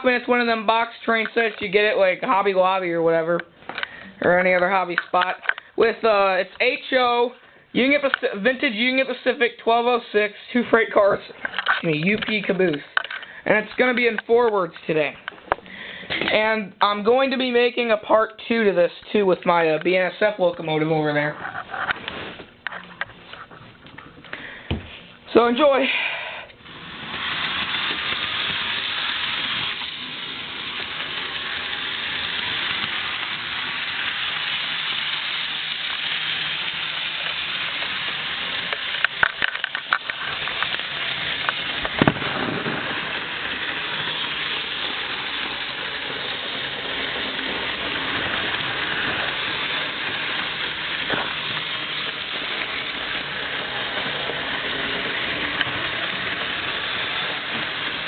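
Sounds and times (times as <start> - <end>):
model train motor whirring: 26.6 - 58.0.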